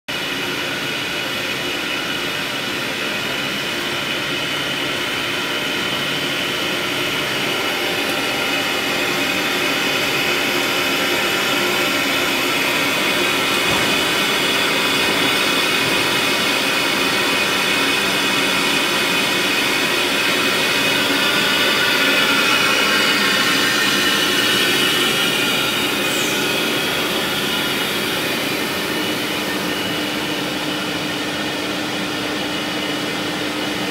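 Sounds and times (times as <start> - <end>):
machine hum and hiss: 0.2 - 33.9
high whining tones: 7.0 - 19.2, 20.5 - 31.5.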